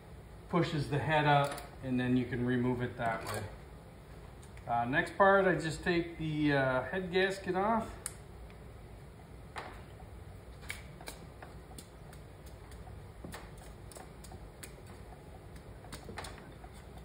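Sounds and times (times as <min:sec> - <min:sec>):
light clicks and taps of metal parts: 0:01.4 - 0:01.8.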